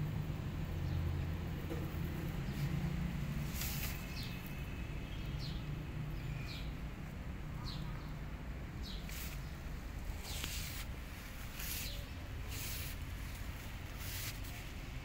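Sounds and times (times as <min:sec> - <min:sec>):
small birds chirping: 0:02.2 - 0:15.0
brief rustles: 0:03.5 - 0:04.2, 0:10.2 - 0:14.7.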